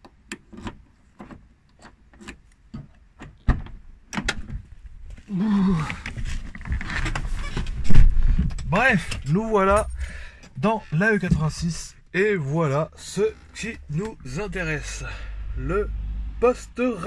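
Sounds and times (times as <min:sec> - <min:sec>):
rustling and shuffling: 0:04.4 - 0:12.1.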